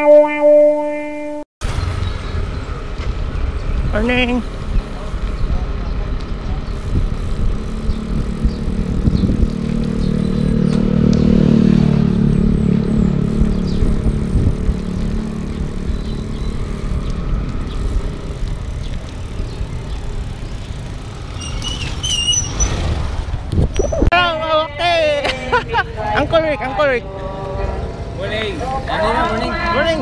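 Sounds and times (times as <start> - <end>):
vehicle engine passing: 1.6 - 23.8, 25.9 - 30.0
wind and road rumble: 1.6 - 30.0
high squeaks: 21.2 - 23.1.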